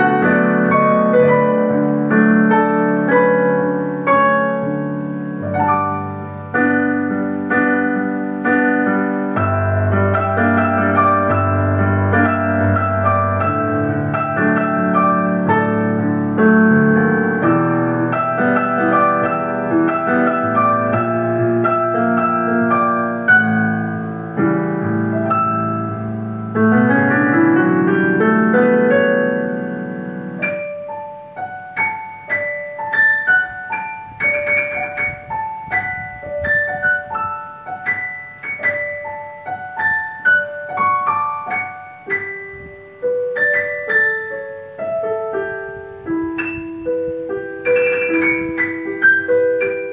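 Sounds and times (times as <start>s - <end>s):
digital piano playing chords: 0.0s - 49.9s.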